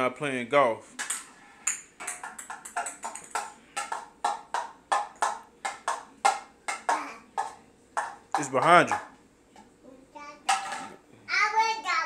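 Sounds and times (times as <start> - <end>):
plastic club tapping on tile floor: 1.0 - 9.7.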